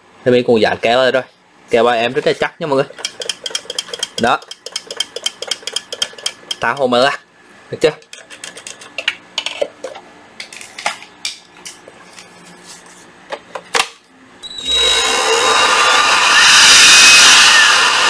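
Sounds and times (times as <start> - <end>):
blower motor rushing air: 14.5 - 18.0.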